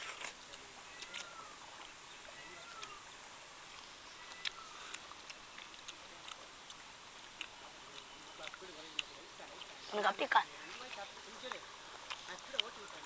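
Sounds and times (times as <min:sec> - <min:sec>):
bird chirps: 0:00.9 - 0:05.8.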